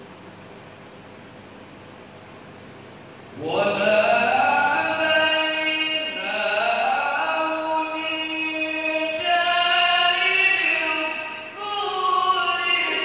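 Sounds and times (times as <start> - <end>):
person reciting melodically: 3.3 - 13.0.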